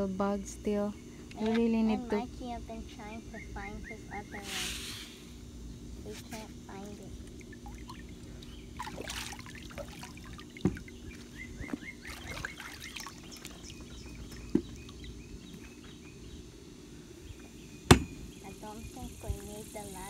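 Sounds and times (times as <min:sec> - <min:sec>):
steady low hum: 0:00.0 - 0:20.0
pool water trickling and splashing: 0:07.2 - 0:15.1
sharp knocks: 0:17.9 - 0:18.2.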